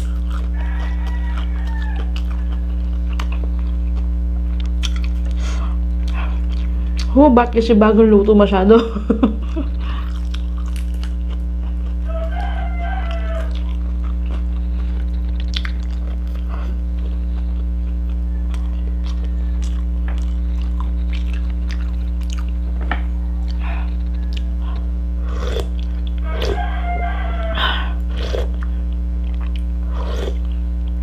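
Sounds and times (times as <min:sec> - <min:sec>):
chewing: 0:00.0 - 0:05.4, 0:06.0 - 0:07.1, 0:09.6 - 0:30.6
steady low hum: 0:00.0 - 0:31.0
rooster crowing: 0:00.2 - 0:03.0, 0:11.9 - 0:13.9, 0:18.2 - 0:19.8, 0:22.9 - 0:24.8, 0:26.2 - 0:28.0.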